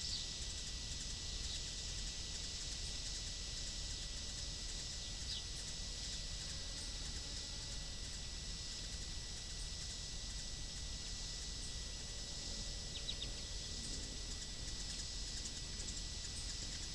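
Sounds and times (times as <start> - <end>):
faint bird chirps: 0.0 - 0.4, 4.9 - 6.3, 12.8 - 16.9
faint constant tone: 0.0 - 16.9.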